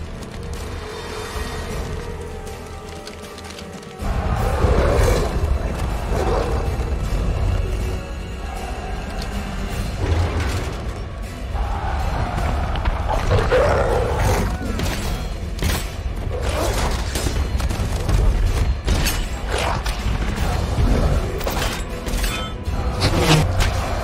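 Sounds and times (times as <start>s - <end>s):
dramatic orchestral music: 0.0s - 24.0s
beast roars and growls: 4.0s - 7.2s, 11.6s - 14.8s.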